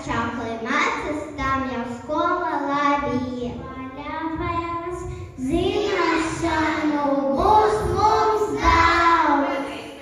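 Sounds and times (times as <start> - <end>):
child singing into microphone: 2.2 - 9.8.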